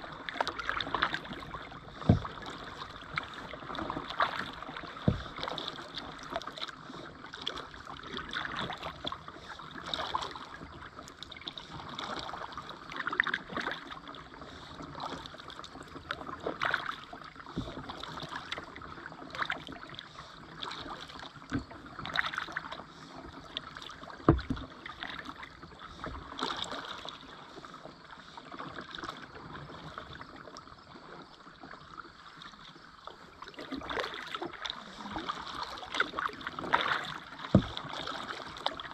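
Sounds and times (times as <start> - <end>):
paddle splashing in water: 0.0 - 38.9
water dripping from paddle: 0.2 - 13.9, 20.6 - 25.4, 33.4 - 38.9.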